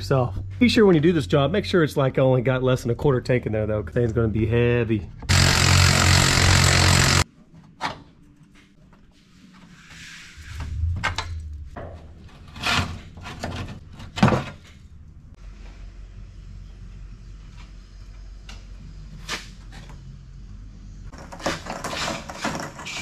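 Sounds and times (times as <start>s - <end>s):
cordless power tool running: 5.3s - 7.2s.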